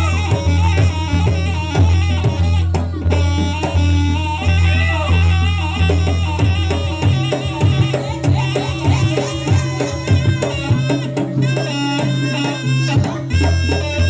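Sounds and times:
bass line: 0.0s - 14.0s
drums: 0.0s - 14.0s.

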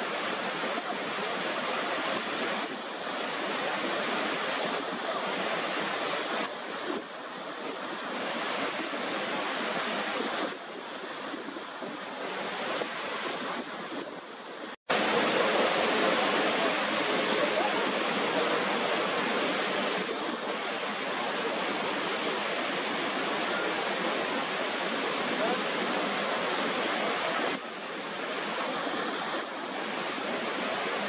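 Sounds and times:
waterfall rushing: 0.0s - 31.0s.

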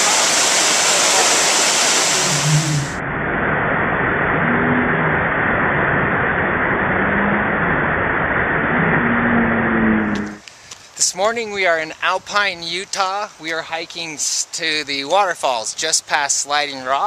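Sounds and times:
waterfall roaring: 0.0s - 3.0s.

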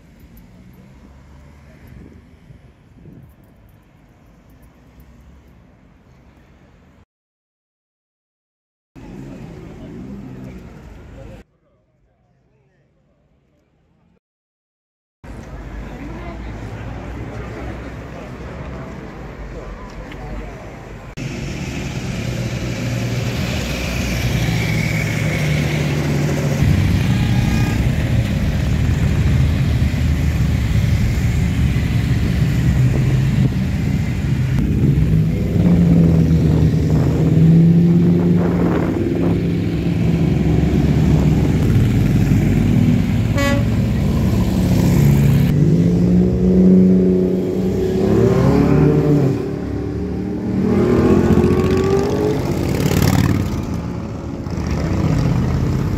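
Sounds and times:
motorcycles riding past: 22.5s - 30.4s, 32.4s - 55.9s
short horn toot: 43.3s - 43.8s.

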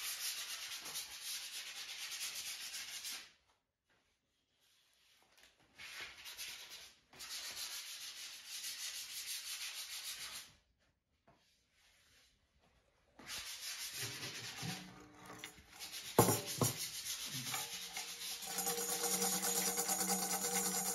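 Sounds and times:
dry rubbing noise: 13.2s - 15.1s, 15.8s - 20.9s.

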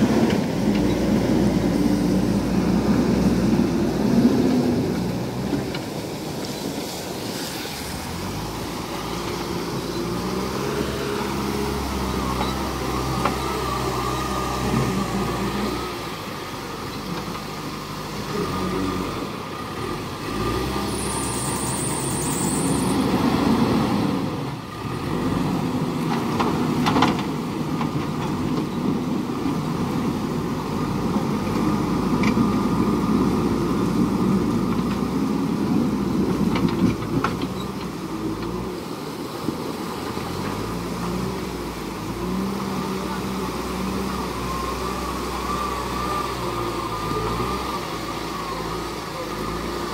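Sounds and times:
diesel engine running under load: 0.0s - 7.3s, 7.9s - 49.9s
vehicle driving through water: 0.0s - 49.9s.

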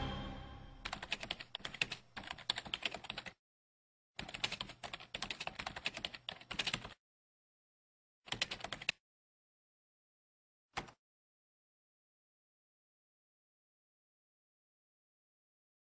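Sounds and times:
computer keyboard typing: 0.8s - 3.4s, 4.2s - 7.0s, 8.3s - 9.0s, 10.8s - 11.0s.

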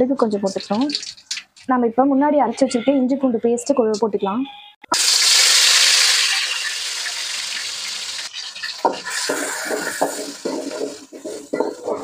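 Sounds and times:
paste sizzling in hot oil: 4.9s - 12.0s
spoon scraping a pan: 8.3s - 12.0s.

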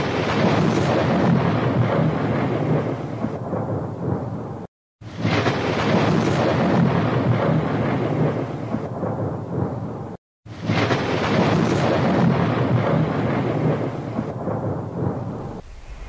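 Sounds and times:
dense rumbling noise: 10.6s - 16.0s.

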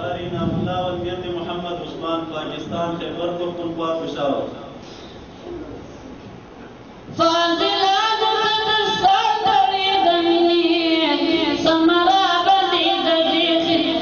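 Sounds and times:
low hall murmur: 0.0s - 14.0s
person singing a religious chant: 7.2s - 14.0s.

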